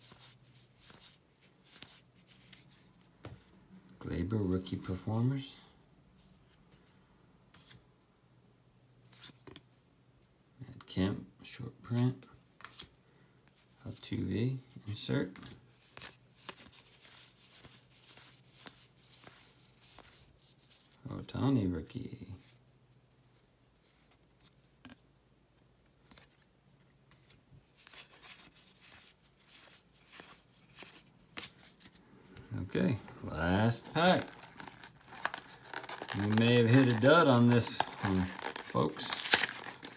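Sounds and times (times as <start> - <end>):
cards rustling: 0.0 - 3.5, 12.6 - 14.0, 15.2 - 21.0, 25.9 - 39.9.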